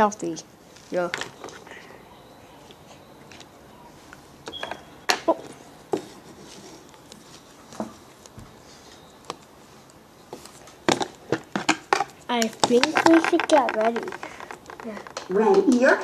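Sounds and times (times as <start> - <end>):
plastic dolls knocking together: 10.9 - 15.7.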